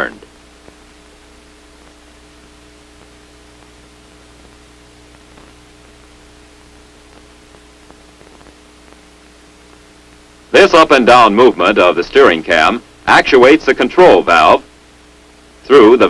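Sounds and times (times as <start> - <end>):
film soundtrack hiss: 0.0 - 16.0
low electrical hum: 0.0 - 16.0
faint clicks: 4.4 - 5.6, 7.1 - 10.3.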